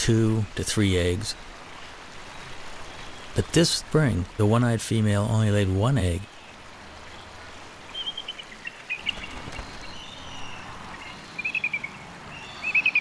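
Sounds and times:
faint steady hiss: 0:00.0 - 0:13.0
eagles calling: 0:06.1 - 0:13.0.

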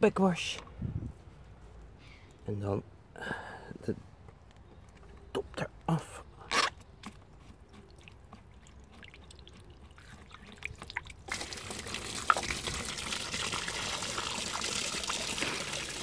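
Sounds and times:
water pouring onto wooden board: 0:08.8 - 0:16.0.

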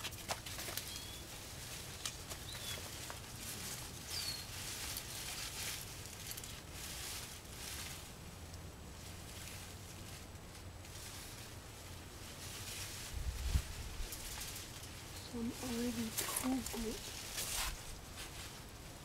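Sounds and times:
faint rustling: 0:00.0 - 0:19.0
high bird chirps: 0:04.1 - 0:04.5.

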